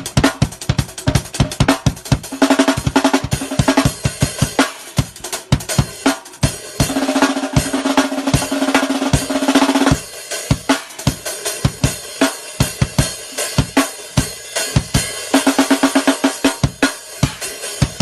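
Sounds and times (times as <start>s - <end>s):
snare drum roll: 0.0s - 13.0s
drum kit groove: 0.0s - 18.0s.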